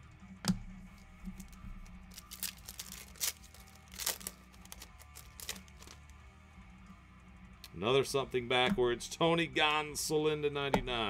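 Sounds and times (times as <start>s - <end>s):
foil wrapper tearing and crinkling: 1.4s - 6.1s.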